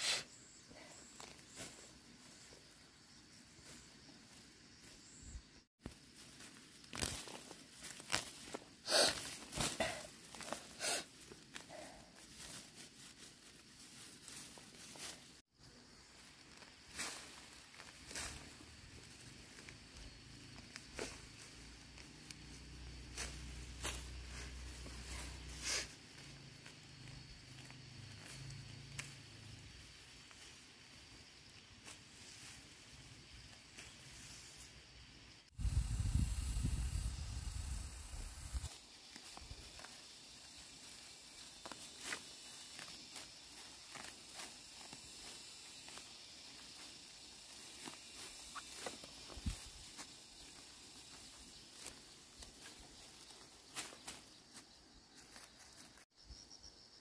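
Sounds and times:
weeds pulled from dry soil: 0.0 - 56.2
wind buffeting microphone: 35.6 - 38.7.

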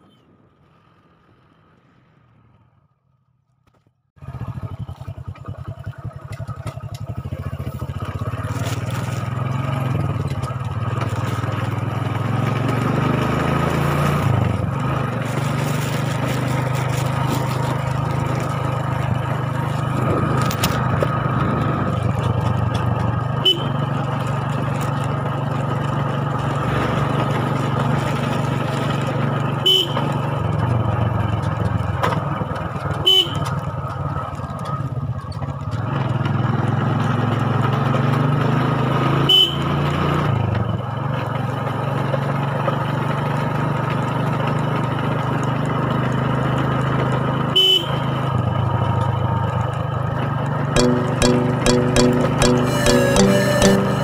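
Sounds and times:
motorcycle engine running: 4.2 - 39.6, 48.2 - 54.0
short sharp sounds: 50.8 - 54.0.

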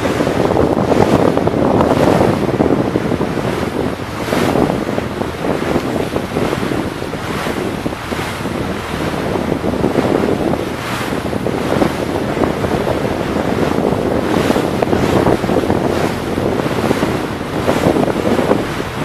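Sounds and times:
water rushing past boat: 0.0 - 19.0
wind buffeting microphone: 0.0 - 19.0.

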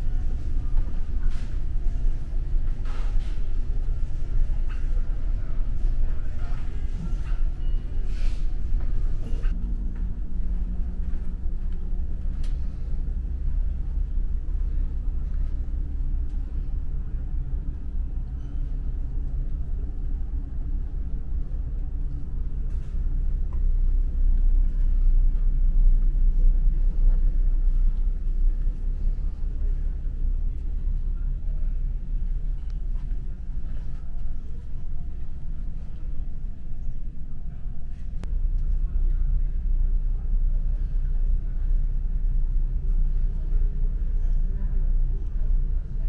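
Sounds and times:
ship engines droning: 0.0 - 46.0.

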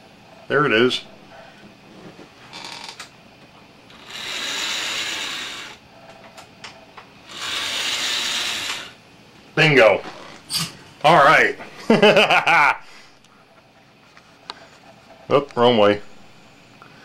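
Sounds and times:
model locomotive motor and gears: 3.9 - 5.8, 7.3 - 9.0.

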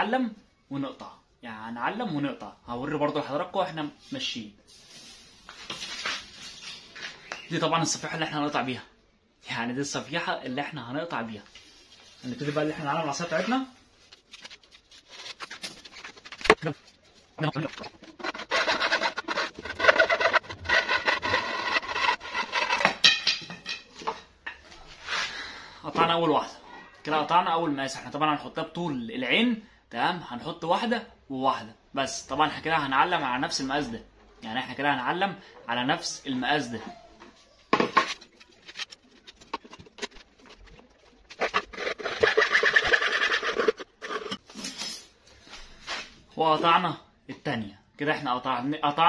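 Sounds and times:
knocks and scrapes: 11.8 - 25.3, 37.7 - 45.1
hand saw cutting wood: 18.0 - 23.0, 41.4 - 44.4.

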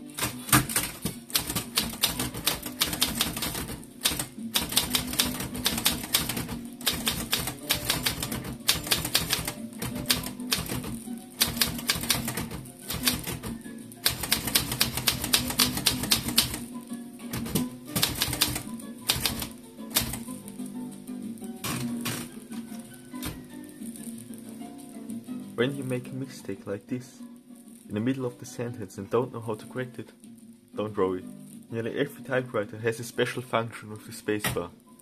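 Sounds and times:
background music: 0.0 - 35.0
typewriter key strikes: 0.2 - 16.6, 17.3 - 20.3.

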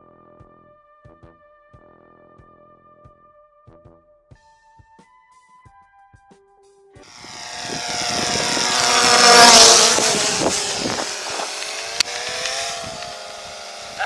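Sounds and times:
drone propellers whining: 7.1 - 14.0
sharp click: 11.3 - 13.2.

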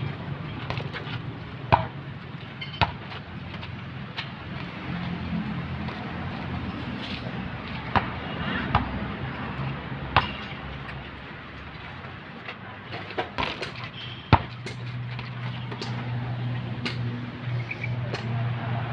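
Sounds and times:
basketball bouncing on concrete: 0.6 - 11.0, 12.9 - 17.2.

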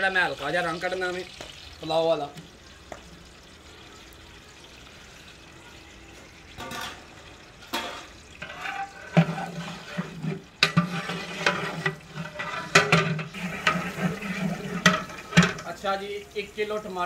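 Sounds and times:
onions sizzling in oil: 0.0 - 17.0
metal ladle scraping a pot: 7.7 - 15.8.

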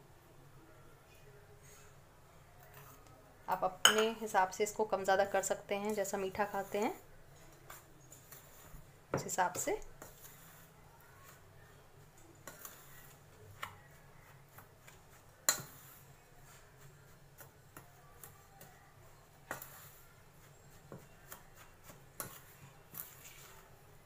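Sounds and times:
spoon scraping a steel bowl: 3.8 - 11.5, 12.2 - 18.4, 19.1 - 23.7.

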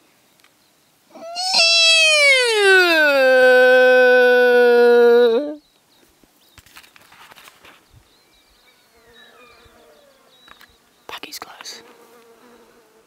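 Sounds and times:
faint insect buzzing: 8.6 - 13.0.

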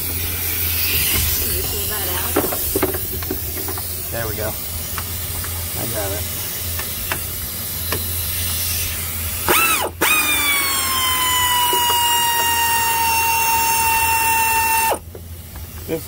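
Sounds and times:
power tool motor whining: 5.3 - 15.1.

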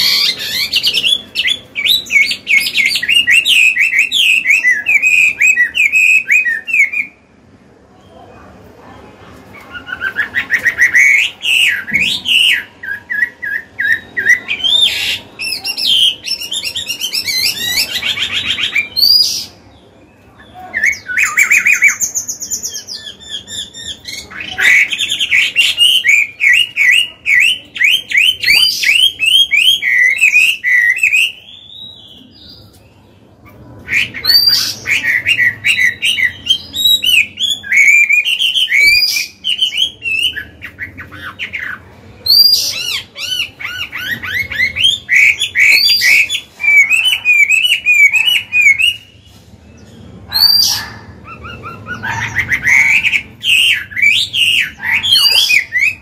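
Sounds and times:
bird singing varied whistled song: 0.0 - 7.3, 9.6 - 19.7, 20.4 - 32.7, 33.9 - 56.0.

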